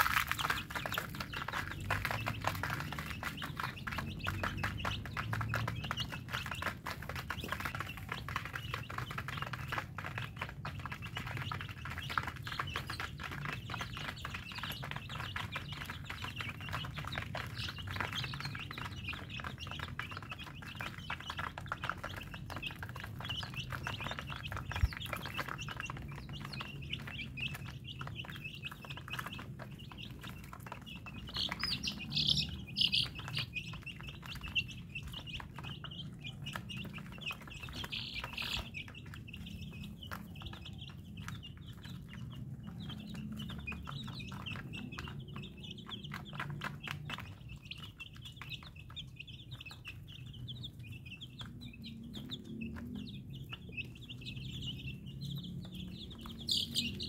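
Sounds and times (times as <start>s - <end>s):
chicks peeping: 0.0s - 57.0s.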